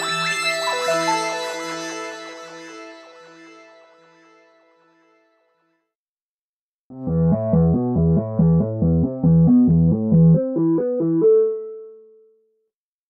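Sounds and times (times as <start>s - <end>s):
pulsing low synth notes: 6.9s - 11.2s
synthesizer saw-wave lead: 6.9s - 11.8s.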